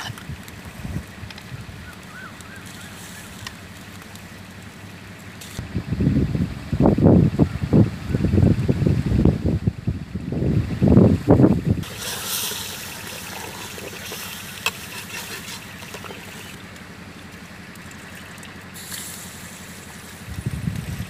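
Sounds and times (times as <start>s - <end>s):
wind rumbling on microphone: 0.0s - 3.4s, 5.4s - 14.2s, 19.8s - 21.0s
rice tipped into water: 11.8s - 16.6s
simmering pot hissing: 11.8s - 21.0s.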